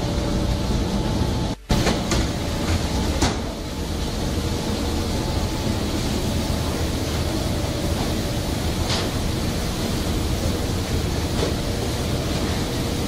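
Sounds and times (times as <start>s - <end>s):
processing machinery droning: 0.0s - 13.0s
machinery clatter: 5.4s - 13.0s.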